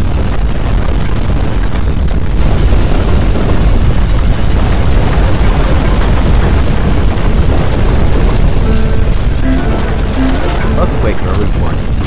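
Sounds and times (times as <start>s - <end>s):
earthquake rumble: 0.0s - 12.0s
faint clicks and rattles: 4.2s - 12.0s.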